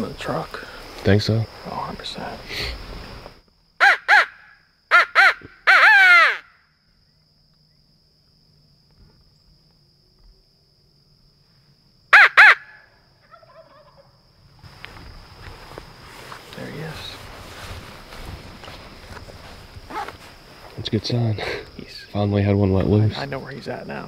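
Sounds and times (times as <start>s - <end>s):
crow call harsh caws: 3.8s - 6.6s, 12.1s - 12.8s.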